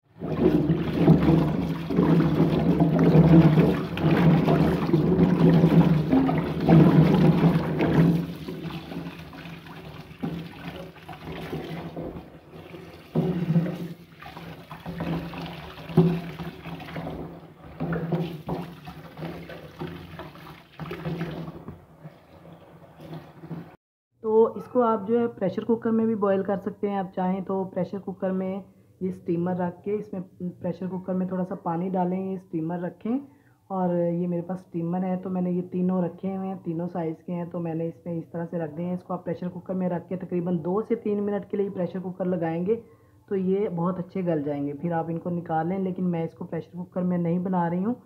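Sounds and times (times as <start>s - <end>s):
water splashes and knocks: 0.1s - 23.8s
water tap running into sink: 0.2s - 21.7s.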